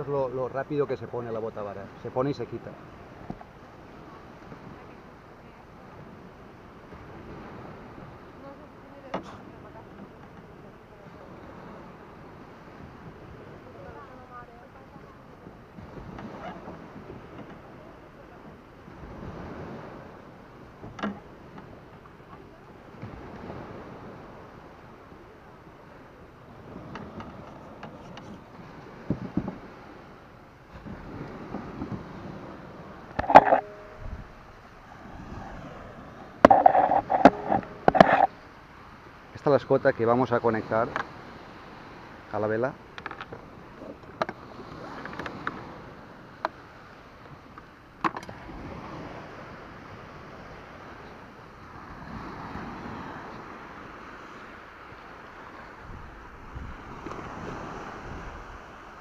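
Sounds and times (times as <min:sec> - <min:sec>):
low surf: 0:00.0 - 0:59.0
wind on microphone: 0:02.6 - 0:38.5, 0:48.2 - 0:59.0
sail rig clicks and knocks: 0:09.1 - 0:10.6, 0:16.0 - 0:17.7, 0:20.8 - 0:22.5, 0:26.8 - 0:29.7, 0:33.0 - 0:34.5, 0:36.4 - 0:38.4, 0:40.9 - 0:41.2, 0:42.9 - 0:45.7, 0:46.4 - 0:46.6, 0:47.3 - 0:48.4.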